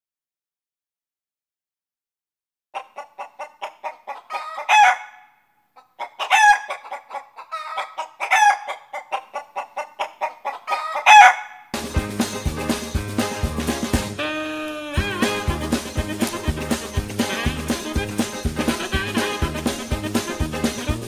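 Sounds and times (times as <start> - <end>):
chicken squawking: 2.8 - 11.7, 12.7 - 21.0
chicken clucking: 2.8 - 14.0, 15.0 - 21.0
upbeat music with a beat: 11.8 - 14.3, 14.9 - 21.0.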